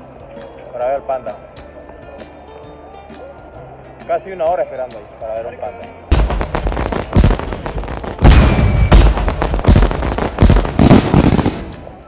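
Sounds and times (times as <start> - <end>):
fireworks bangs and crackling: 6.1 - 12.0.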